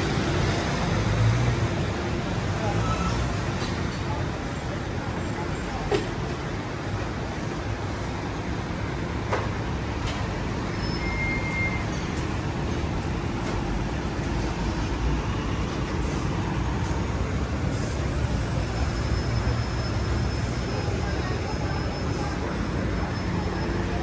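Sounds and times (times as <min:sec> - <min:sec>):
city street traffic: 0:00.0 - 0:24.0.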